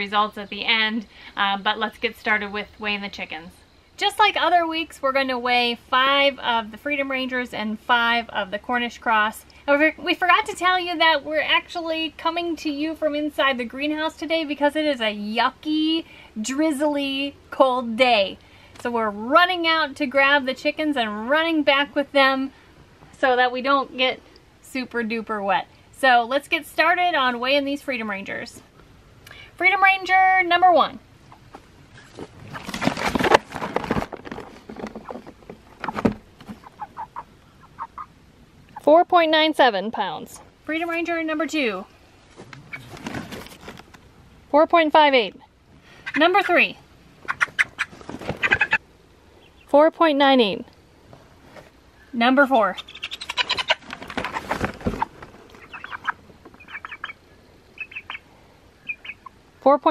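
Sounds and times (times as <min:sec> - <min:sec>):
rustling: 0:31.2 - 0:37.8, 0:41.9 - 0:44.2, 0:47.2 - 0:48.8, 0:51.0 - 0:51.9, 0:52.8 - 0:57.0
chicken flapping wings: 0:31.6 - 0:37.0, 0:47.3 - 0:48.8, 0:52.9 - 0:56.1
chicken clucking: 0:35.8 - 0:38.1, 0:47.2 - 0:48.8, 0:52.8 - 0:57.2.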